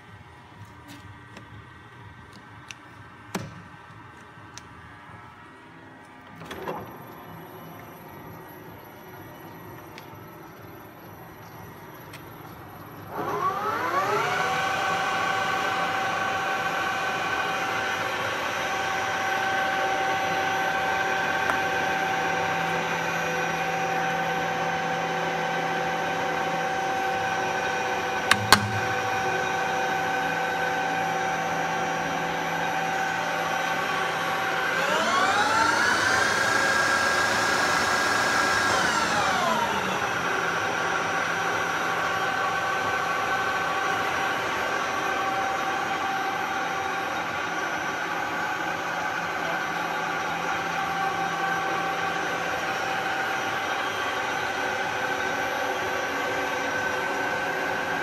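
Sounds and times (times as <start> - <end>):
lathe drive whine: 3.9 - 58.0
rising and falling whine: 4.8 - 58.0
sharp clicks: 28.3 - 29.2.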